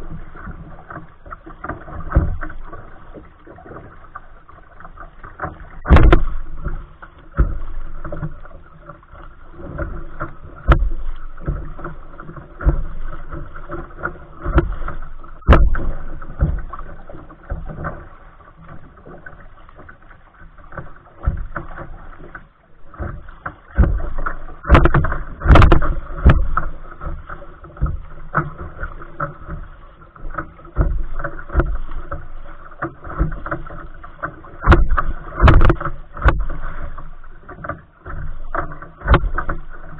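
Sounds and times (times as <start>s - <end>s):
paddle strokes splashing: 0.0s - 39.9s
waves slapping a hull: 0.0s - 39.9s.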